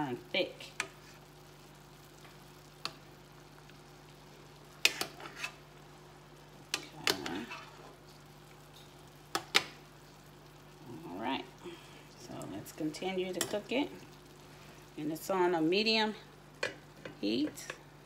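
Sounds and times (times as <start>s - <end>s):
low steady hum: 0.0s - 18.0s
spoon scraping cast-iron skillet: 0.6s - 1.3s, 4.7s - 5.8s, 6.6s - 9.8s.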